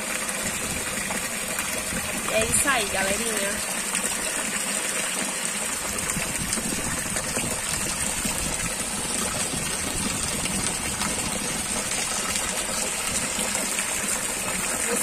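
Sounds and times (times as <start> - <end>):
heavy rain falling: 6.4 - 15.0.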